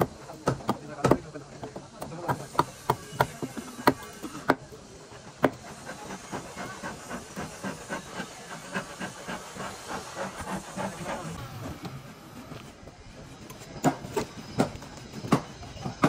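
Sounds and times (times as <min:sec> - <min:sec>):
hammer striking wood: 0:00.0 - 0:04.6, 0:13.8 - 0:16.0.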